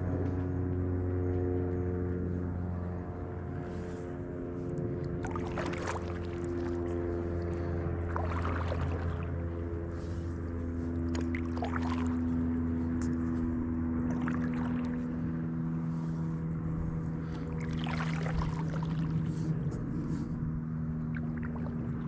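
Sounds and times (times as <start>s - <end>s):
steady low hum: 0.0s - 22.0s
paddle strokes swishing through water: 2.6s - 22.0s.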